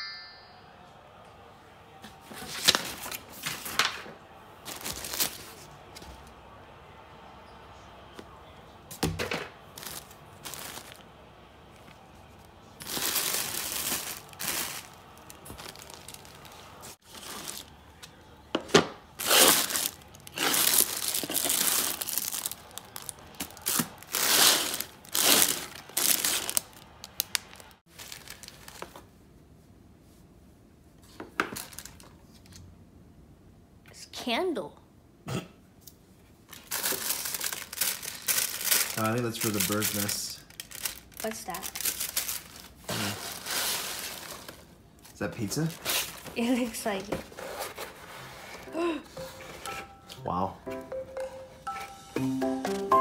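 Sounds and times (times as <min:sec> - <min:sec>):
paper filler rustling and crinkling: 0:02.1 - 0:06.2, 0:09.2 - 0:11.1, 0:12.8 - 0:18.1, 0:18.7 - 0:29.1, 0:31.1 - 0:32.6, 0:36.5 - 0:49.8.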